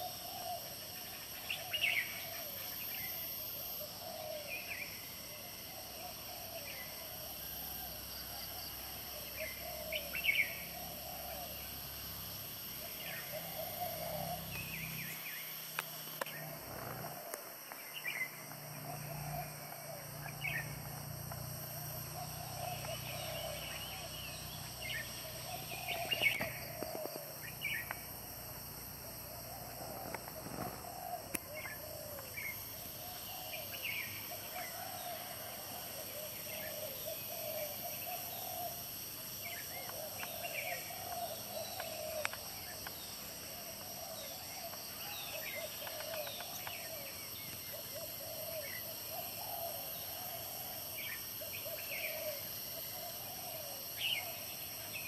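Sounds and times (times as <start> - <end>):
birds chirping and warbling: 8.5 - 11.7, 12.8 - 28.2, 29.3 - 38.8, 39.4 - 55.0.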